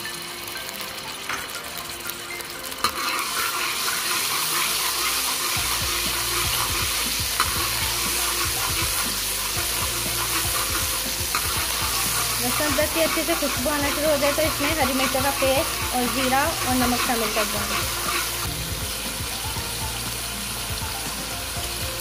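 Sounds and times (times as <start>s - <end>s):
paste sizzling in hot oil: 0.0s - 22.0s
spoon stirring in pot: 2.8s - 18.5s.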